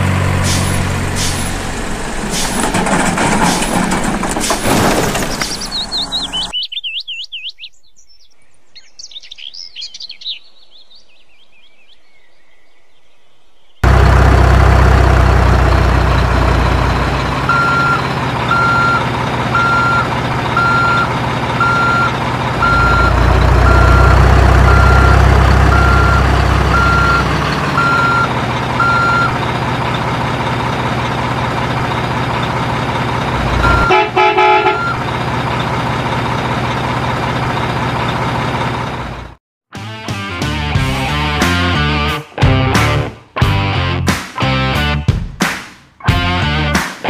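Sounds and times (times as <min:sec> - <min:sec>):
truck engine rumbling: 0:00.0 - 0:06.6, 0:13.8 - 0:39.4
reversing beeper: 0:17.4 - 0:29.4, 0:33.6 - 0:35.0
truck horn blast: 0:33.4 - 0:35.0.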